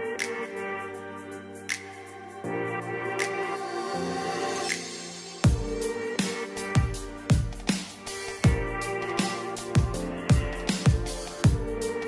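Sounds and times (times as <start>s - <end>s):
electronic music with sustained chords: 0.0s - 12.0s
heavy kick drum beat: 5.4s - 11.9s.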